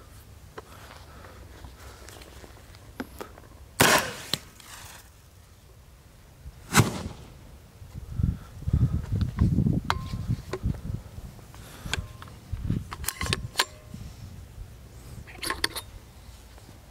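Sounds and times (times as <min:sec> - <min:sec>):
launcher firing bang: 0:03.8 - 0:04.5, 0:06.7 - 0:07.4.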